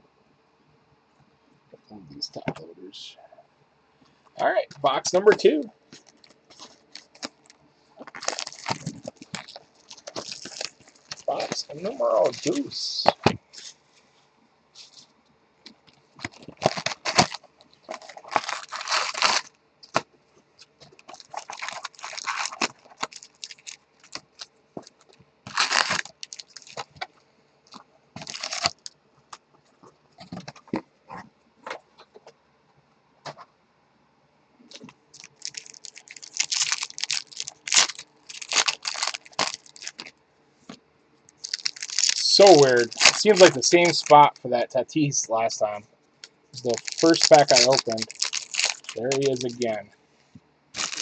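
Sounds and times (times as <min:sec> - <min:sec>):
foil pack crackling: 0:05.9 - 0:12.7, 0:16.2 - 0:27.1, 0:28.2 - 0:28.9, 0:34.7 - 0:40.1, 0:41.4 - 0:44.3, 0:46.6 - 0:49.8, 0:50.8 - 0:51.0
packaging crinkling and tearing: 0:05.9 - 0:13.4, 0:16.2 - 0:27.1, 0:27.7 - 0:28.9, 0:34.7 - 0:40.1, 0:41.4 - 0:44.4, 0:46.6 - 0:49.8, 0:50.8 - 0:51.0.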